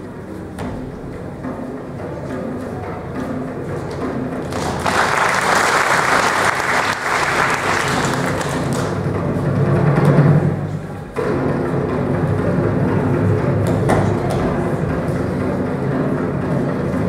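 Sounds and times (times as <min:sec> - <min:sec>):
background music with drums: 0:00.0 - 0:17.0
audience applauding: 0:04.4 - 0:09.1.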